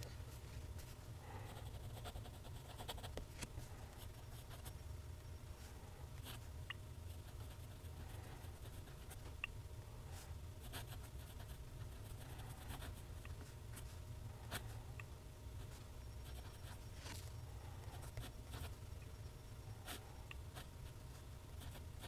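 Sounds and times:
low steady hum: 0:00.0 - 0:22.0.

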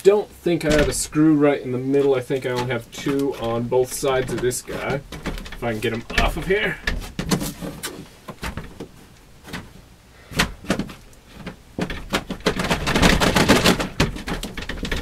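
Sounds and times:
loud knocks and rattles: 0:00.7 - 0:01.2, 0:03.0 - 0:08.9, 0:09.5 - 0:15.0.

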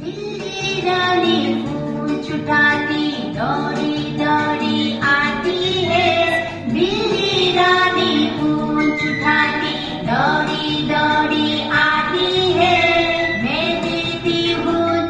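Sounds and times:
high singing voice: 0:00.0 - 0:15.0
instrumental backing track: 0:00.0 - 0:15.0.

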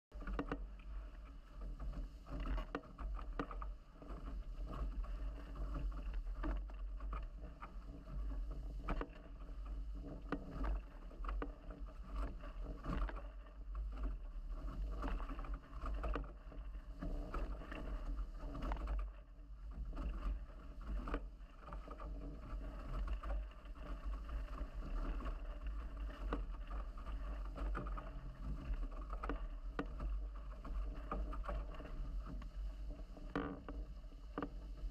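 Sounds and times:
water rushing against hulls: 0:00.1 - 0:34.9
wind rumble on microphone: 0:00.1 - 0:34.9.

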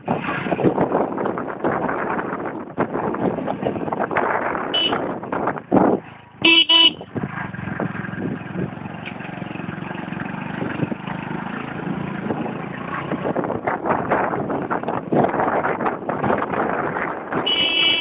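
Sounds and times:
road noise: 0:00.0 - 0:18.0
motorcycle engine running: 0:00.1 - 0:18.0
motorcycle horn beeping: 0:04.8 - 0:05.1, 0:06.4 - 0:07.1, 0:17.4 - 0:18.0.

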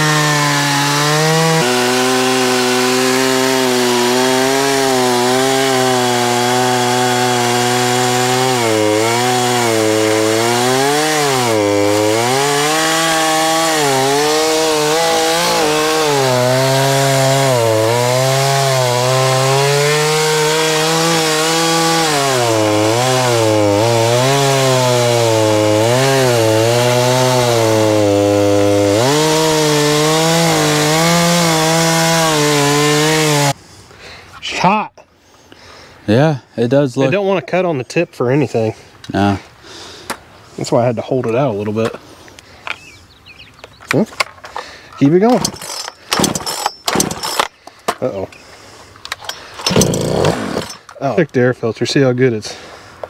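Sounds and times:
chainsaw cutting log: 0:00.0 - 0:33.6, 0:44.0 - 0:48.2, 0:49.0 - 0:51.0.

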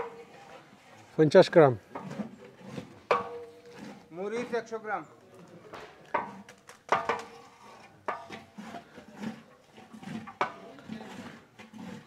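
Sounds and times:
metal cookware clanking: 0:01.9 - 0:04.0.

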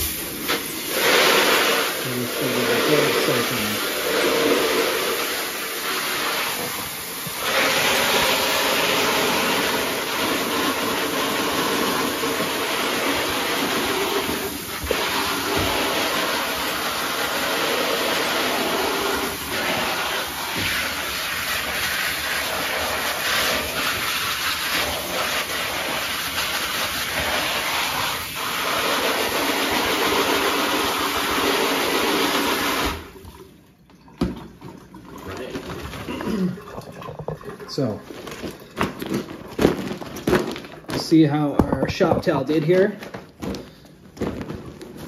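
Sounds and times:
shower spraying water: 0:00.0 - 0:33.6.

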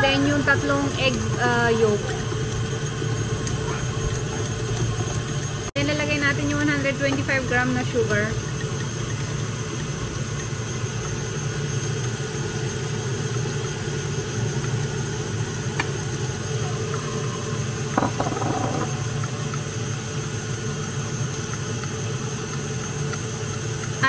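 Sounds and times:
electric mixer running: 0:00.0 - 0:24.0.

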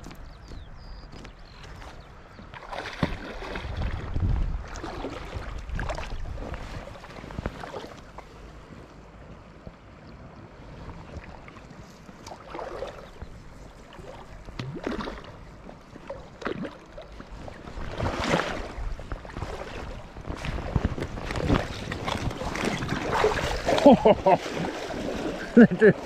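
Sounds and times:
wind buffeting microphone: 0:00.0 - 0:16.4, 0:17.1 - 0:25.9
river water splashing: 0:01.6 - 0:26.0
sharp splash: 0:02.6 - 0:08.0, 0:12.2 - 0:13.1, 0:14.0 - 0:15.4, 0:17.8 - 0:26.0.

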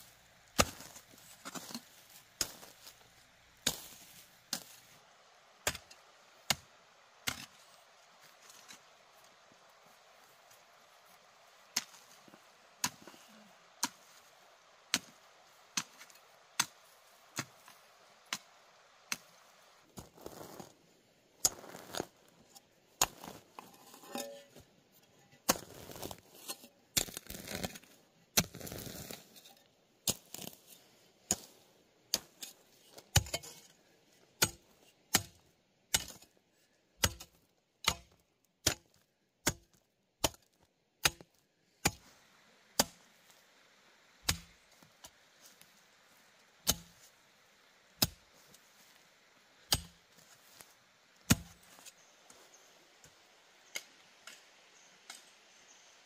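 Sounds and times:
rustling and scraping: 0:00.6 - 0:05.0, 0:19.2 - 0:20.8, 0:21.5 - 0:27.9
chopping strikes: 0:51.3 - 0:51.6.

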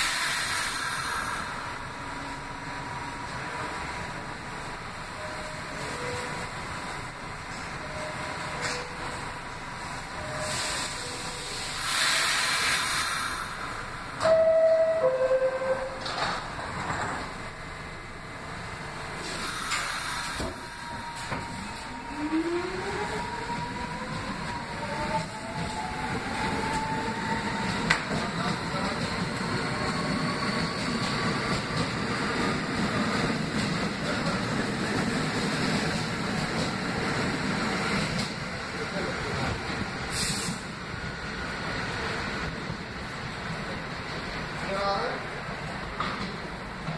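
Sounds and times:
hiss of air: 0:00.0 - 0:01.9, 0:10.4 - 0:14.2, 0:19.2 - 0:20.8, 0:40.1 - 0:40.8
subway train wheels rumbling: 0:00.0 - 0:46.9.

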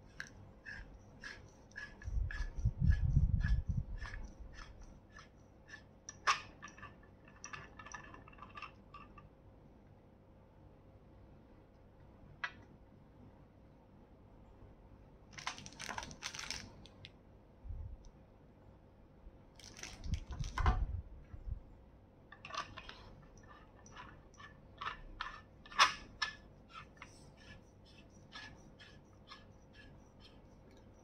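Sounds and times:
flashlight parts clicking and scraping: 0:00.1 - 0:09.2, 0:22.4 - 0:30.8.

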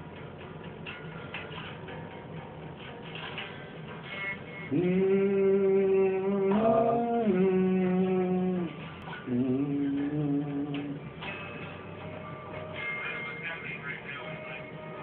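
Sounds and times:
electric guitars and bass chords: 0:00.0 - 0:15.0.

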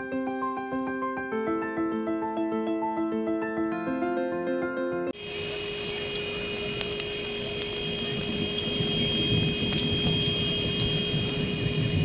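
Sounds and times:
constant mechanical hum: 0:05.2 - 0:12.0
wavering low rumble: 0:05.2 - 0:12.0.

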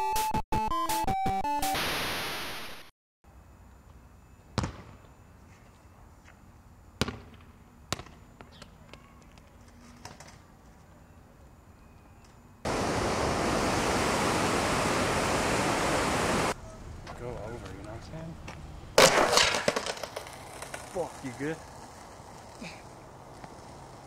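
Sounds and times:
football bouncing on concrete: 0:04.6 - 0:05.0, 0:07.0 - 0:08.6
loud rushing hiss: 0:12.7 - 0:16.6.

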